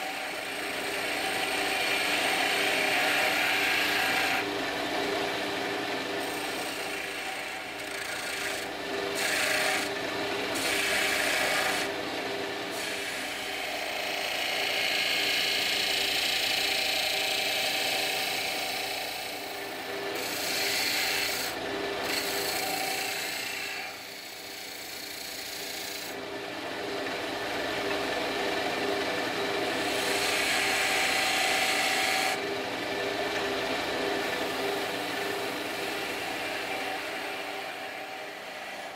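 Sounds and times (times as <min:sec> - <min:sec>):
chisel cutting spinning wood: 0:00.0 - 0:38.9
wood lathe motor hum: 0:00.0 - 0:38.9.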